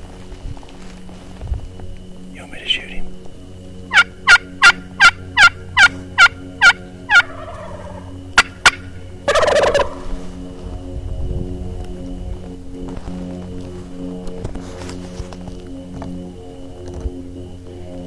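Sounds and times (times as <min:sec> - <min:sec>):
turkey yelps: 0:03.9 - 0:10.0
turkey gobble: 0:03.9 - 0:10.1.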